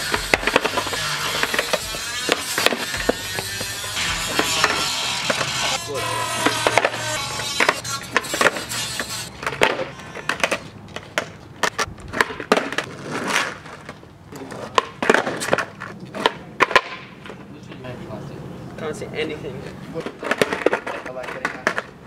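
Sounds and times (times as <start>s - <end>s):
skateboard wheels rolling on asphalt: 0.0s - 3.4s, 9.4s - 18.0s, 19.4s - 22.0s
skateboard clacking: 0.0s - 5.8s, 6.4s - 17.4s, 20.0s - 22.0s.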